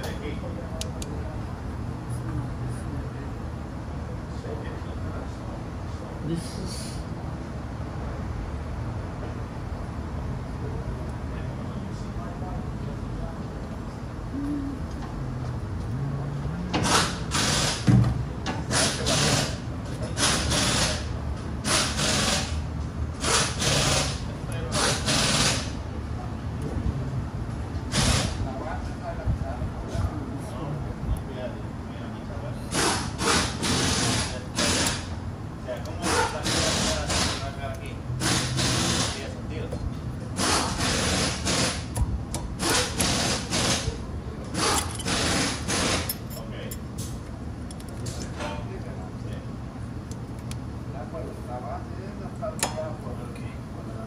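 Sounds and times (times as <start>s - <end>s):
hand tool scraping metal: 44.6s - 46.4s.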